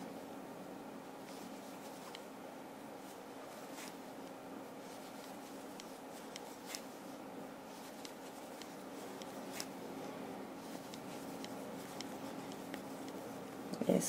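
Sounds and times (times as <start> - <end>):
low background hum: 0.0 - 14.0
crochet hook clicking on yarn: 10.7 - 13.3.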